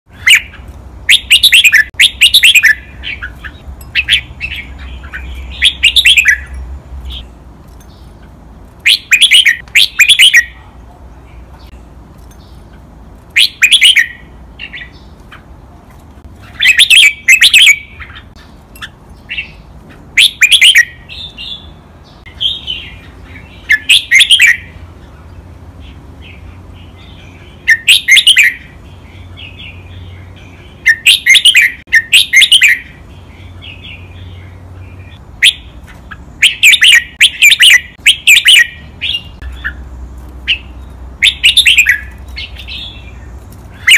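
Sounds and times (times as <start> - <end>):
bird singing whistled phrases: 1.1 - 6.5, 8.9 - 10.6, 13.4 - 14.2, 16.6 - 18.2, 20.2 - 21.7, 23.6 - 24.7, 27.7 - 28.7, 30.8 - 33.0, 36.4 - 39.8, 40.5 - 43.1.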